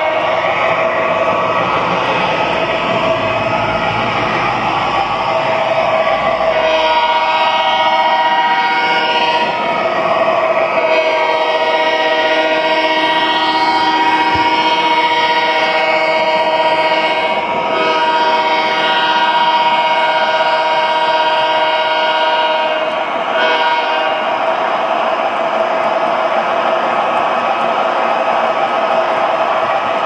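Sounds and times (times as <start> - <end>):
diesel locomotive horn blasts: 6.5 - 9.6, 10.8 - 24.3.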